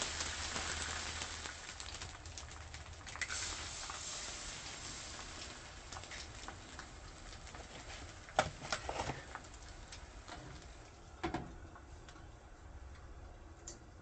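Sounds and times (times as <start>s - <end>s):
eggs frying on griddle: 0.0s - 11.1s.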